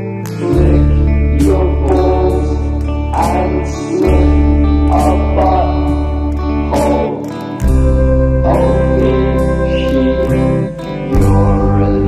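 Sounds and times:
bass guitar: 0:00.0 - 0:12.0
electric guitar chords: 0:00.0 - 0:12.0.

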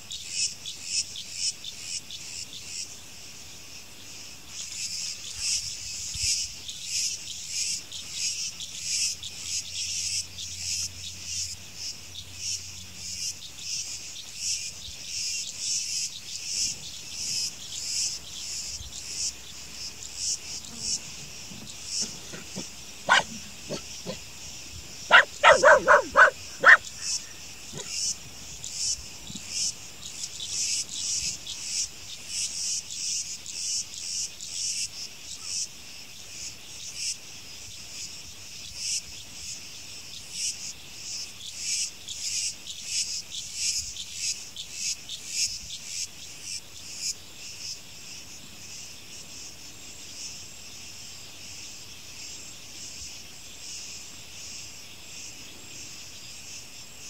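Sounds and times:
insects calling high-pitched: 0:04.5 - 0:35.6.

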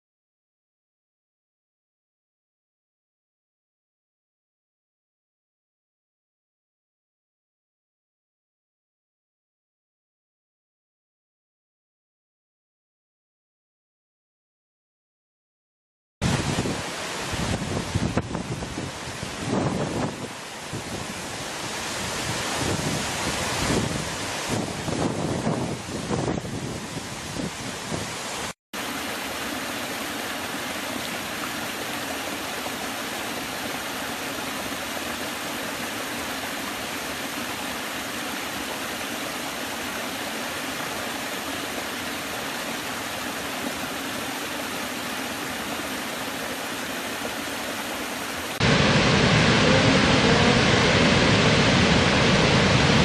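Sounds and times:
large waterfall rushing: 0:16.2 - 0:53.0
river pouring over cliff: 0:16.2 - 0:53.0
stream splashing over rocks: 0:16.2 - 0:53.0.

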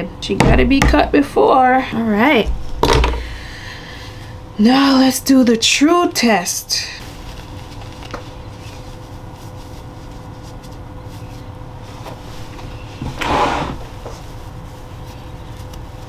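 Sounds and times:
low background hum: 0:00.0 - 0:16.0
handling rustle: 0:07.0 - 0:13.2.

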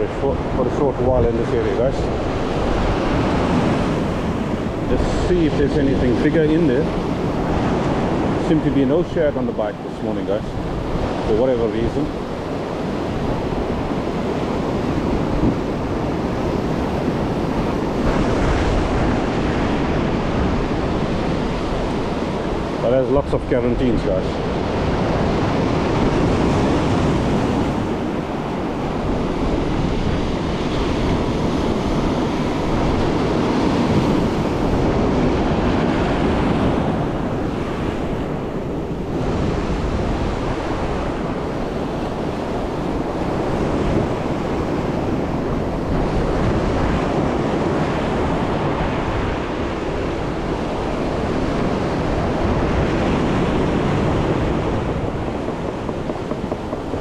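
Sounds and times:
wind buffeting microphone: 0:00.0 - 0:57.0
surf breaking over rocks: 0:43.0 - 0:57.0.

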